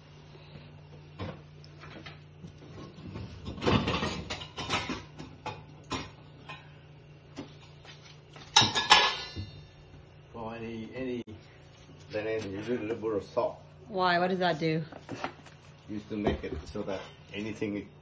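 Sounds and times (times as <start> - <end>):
steady low hum: 0.0 - 18.0
kitchen knocks and clatter: 2.7 - 6.7, 8.4 - 9.7.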